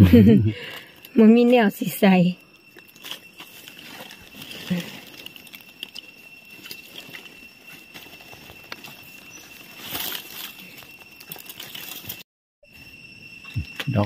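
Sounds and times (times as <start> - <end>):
small twigs snapping: 2.7 - 12.2
dry leaves rustling and crackling: 2.8 - 12.2.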